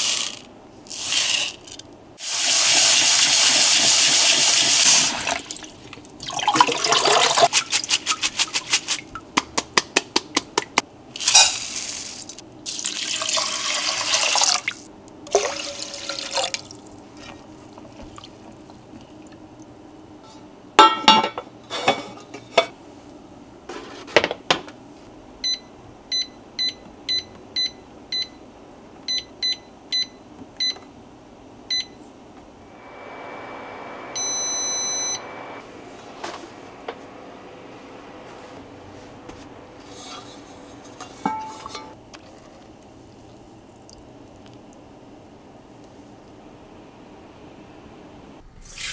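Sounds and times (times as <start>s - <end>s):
steady electric hum: 10.5s - 48.7s
short electronic beeps: 34.2s - 35.2s
pot knocking: 41.0s - 41.9s.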